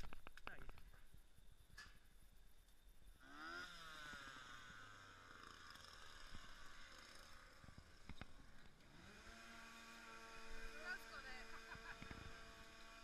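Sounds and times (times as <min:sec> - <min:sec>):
faint engine running: 0:03.1 - 0:13.0.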